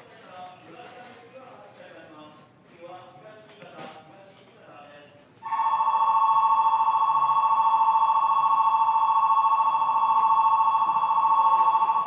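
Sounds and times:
trilling two-tone electronic bell: 5.4 - 12.0.

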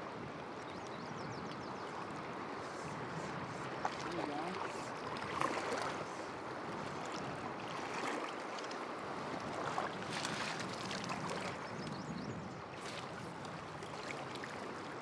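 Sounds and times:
water splashes: 0.0 - 11.8, 12.7 - 15.0
river water rushing: 1.9 - 11.6, 12.8 - 15.0.

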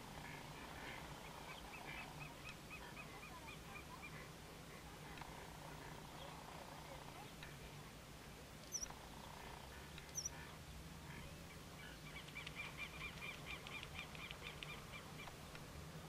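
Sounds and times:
bird chirping rapidly: 8.6 - 9.0, 10.0 - 10.4.

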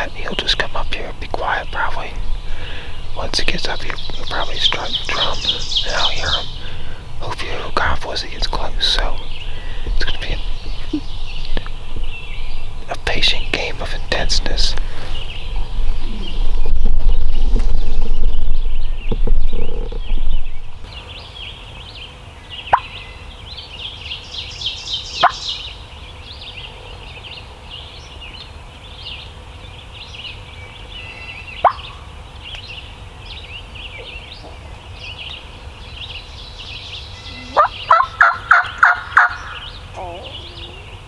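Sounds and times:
songbird song: 0.0 - 41.0
turkey gobbling: 31.6 - 31.9, 37.3 - 39.6.

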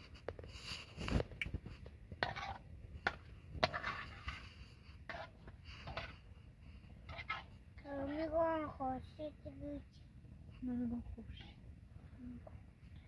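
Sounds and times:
fork scraping metal frying pan: 2.2 - 4.4, 5.0 - 6.2, 7.1 - 7.5.

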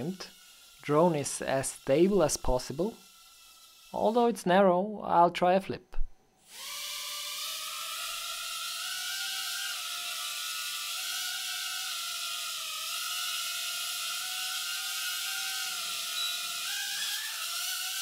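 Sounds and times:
drone motors and propellers whining: 6.4 - 18.0.

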